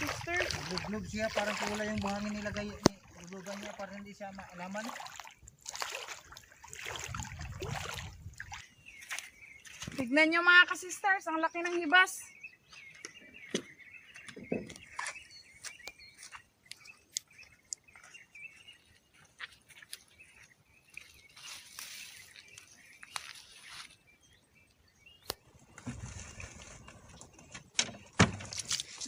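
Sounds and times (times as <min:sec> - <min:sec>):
birds chirping: 0:00.0 - 0:29.0.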